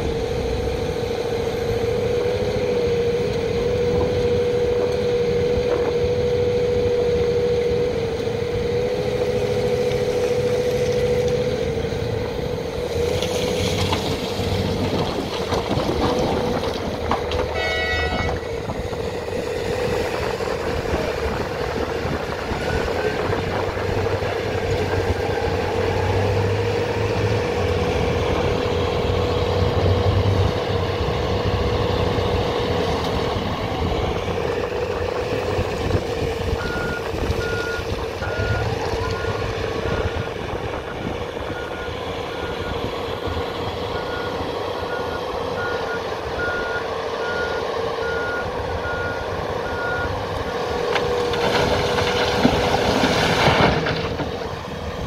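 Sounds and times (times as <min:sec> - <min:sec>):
heavy diesel engines running: 0:00.0 - 0:55.0
reversing alarm beeping: 0:36.6 - 0:40.0, 0:40.7 - 0:42.9, 0:43.9 - 0:50.6.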